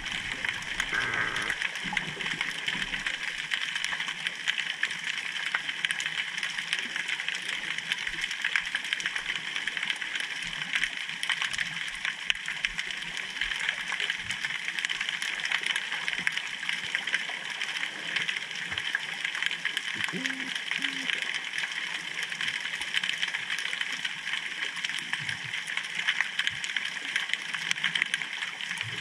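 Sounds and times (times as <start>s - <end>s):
underwater hiss: 0.0s - 2.5s.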